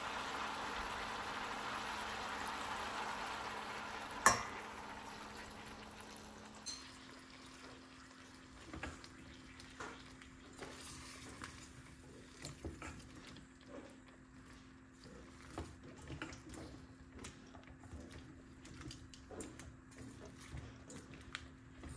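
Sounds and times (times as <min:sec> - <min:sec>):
water pouring into a pot: 0:00.0 - 0:12.5
glass clinking on pot: 0:04.2 - 0:04.6, 0:06.6 - 0:07.0.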